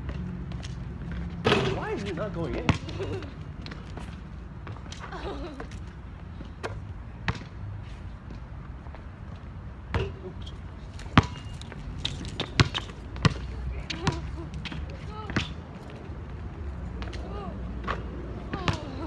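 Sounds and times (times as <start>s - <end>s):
basketball bouncing: 2.6s - 4.9s, 6.6s - 7.6s, 11.0s - 15.6s, 17.8s - 19.0s.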